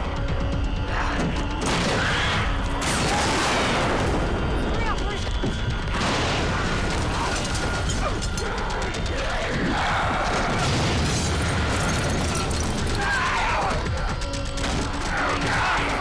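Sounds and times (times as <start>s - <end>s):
tense music score: 0.0s - 16.0s.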